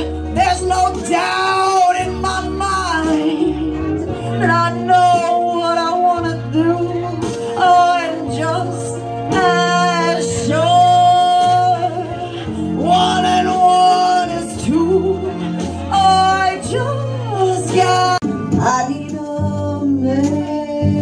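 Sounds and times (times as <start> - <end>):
person singing with vibrato: 0.0 - 21.0.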